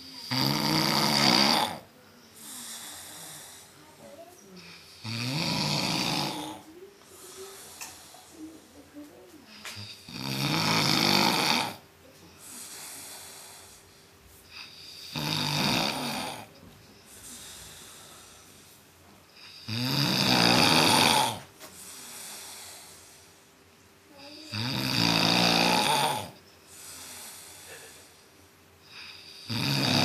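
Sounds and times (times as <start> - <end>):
man snoring: 0.0 - 3.7, 4.6 - 7.7, 9.8 - 11.8, 14.5 - 16.5, 19.4 - 21.4, 24.4 - 27.9, 28.9 - 30.0
soft breaths: 0.0 - 10.1, 11.1 - 19.7, 21.2 - 24.5, 25.9 - 29.5.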